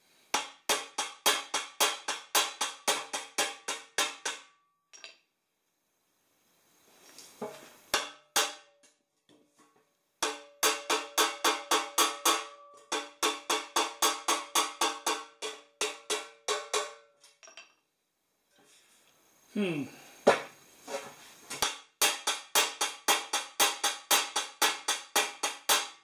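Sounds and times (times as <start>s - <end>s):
hammer striking metal pipe: 0.3s - 5.2s, 7.4s - 8.9s, 10.2s - 17.6s, 21.5s - 26.0s.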